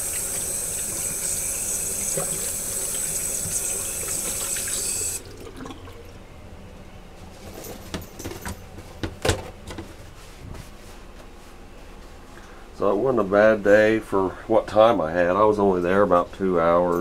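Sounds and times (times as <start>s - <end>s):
water running from sink faucet: 0.0s - 5.8s
paper towel rustling: 9.9s - 12.3s.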